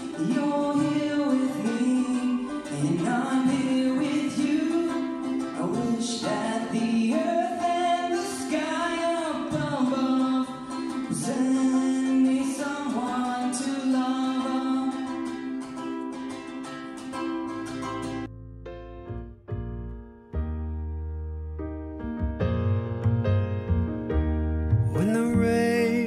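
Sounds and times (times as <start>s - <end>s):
person singing: 0.0s - 16.6s, 24.9s - 26.0s
guitar accompaniment: 0.0s - 26.0s.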